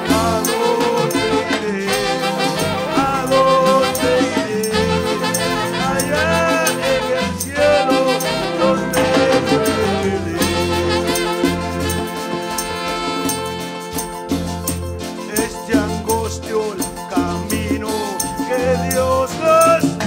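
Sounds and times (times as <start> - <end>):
saxophones playing melody: 0.0 - 14.8
percussion: 0.0 - 20.0
electric bass: 8.6 - 13.6.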